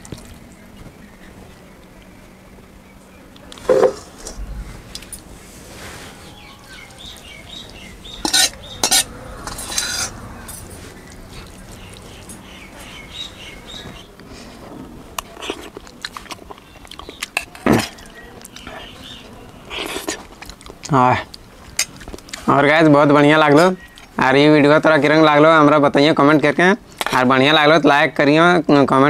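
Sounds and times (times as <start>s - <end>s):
metal spoon clinking on bowls: 8.0s - 12.5s.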